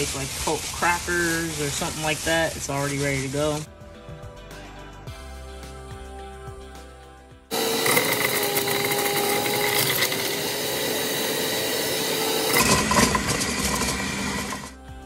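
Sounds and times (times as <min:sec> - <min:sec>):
juicer motor whining: 0:07.5 - 0:14.8.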